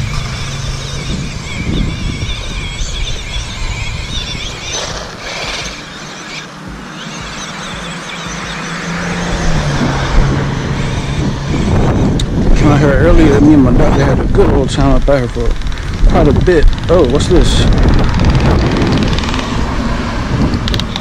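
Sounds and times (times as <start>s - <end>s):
toy car electric motor whining: 0.0s - 8.6s.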